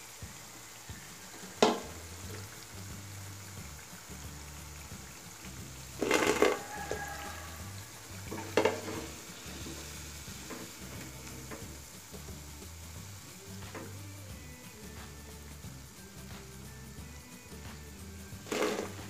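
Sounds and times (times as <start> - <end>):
deep-frying in hot oil: 0.0 - 19.0
metal skimmer knocking pan: 1.2 - 2.5, 5.9 - 11.8, 18.4 - 19.0.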